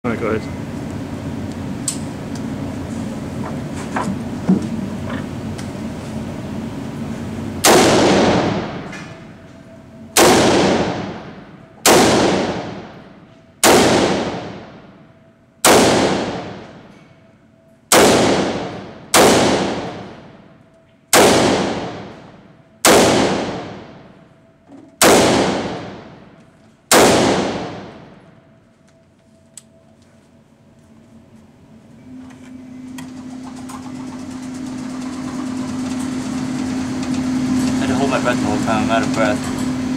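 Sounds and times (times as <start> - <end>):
rifle shots echoing indoors: 7.6 - 9.3, 10.0 - 17.1, 17.9 - 20.5, 21.1 - 24.3, 25.0 - 28.4.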